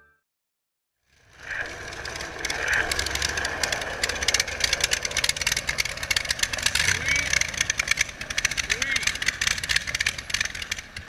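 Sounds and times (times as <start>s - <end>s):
rough car engine running: 1.0s - 11.0s.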